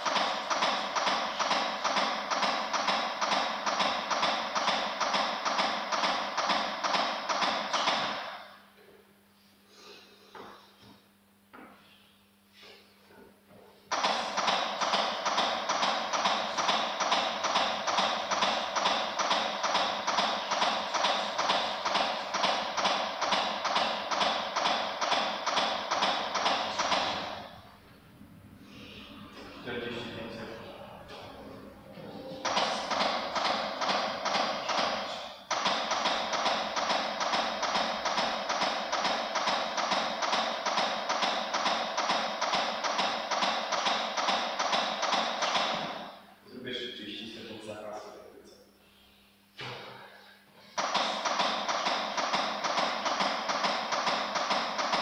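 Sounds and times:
fast electronic clicking beat: 0:00.0 - 0:08.4, 0:13.9 - 0:27.5, 0:32.4 - 0:46.1, 0:50.8 - 0:55.0.

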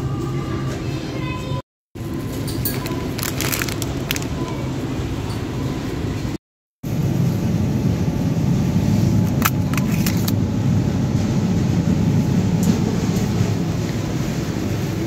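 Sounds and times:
shopping cart rolling rumble: 0:02.0 - 0:15.0
plastic packaging clicks: 0:02.6 - 0:04.6.

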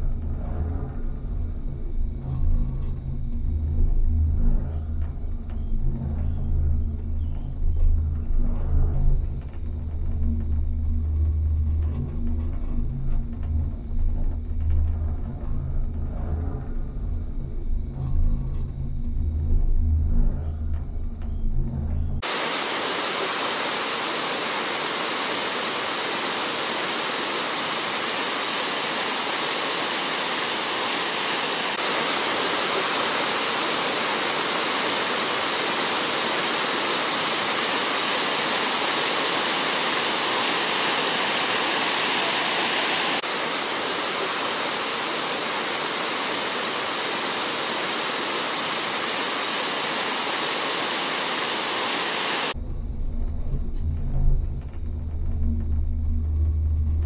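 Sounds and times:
waterfall rushing: 0:22.2 - 0:52.6.

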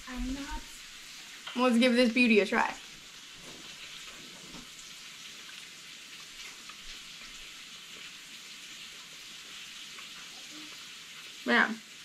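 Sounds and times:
vegetable sizzling in a frying pan: 0:00.0 - 0:12.0
chewing: 0:03.4 - 0:11.4.

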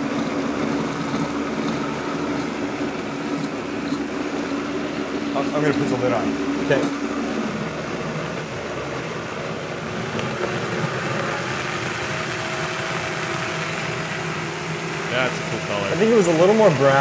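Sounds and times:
blender motor running: 0:09.8 - 0:17.0.

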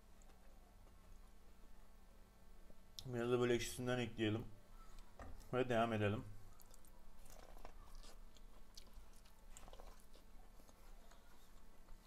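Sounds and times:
person chewing with soft crunches: 0:00.0 - 0:01.4, 0:04.8 - 0:05.6, 0:06.4 - 0:12.0.

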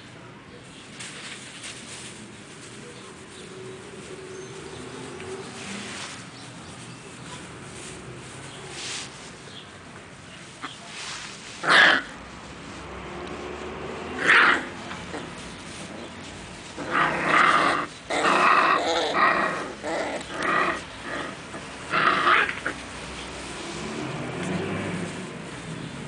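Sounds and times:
puppies vocalising while play-fighting: 0:14.0 - 0:23.7.

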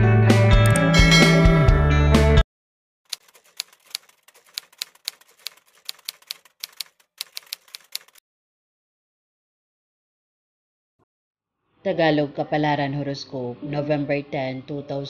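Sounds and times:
typewriter key clicks: 0:03.1 - 0:08.2.

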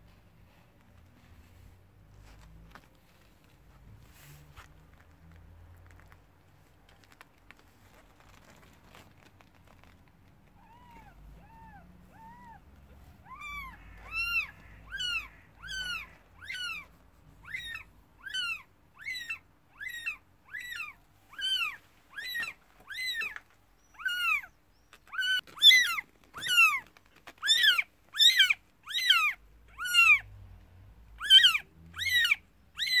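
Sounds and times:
kittens mewing: 0:10.5 - 0:30.3, 0:31.1 - 0:33.0.

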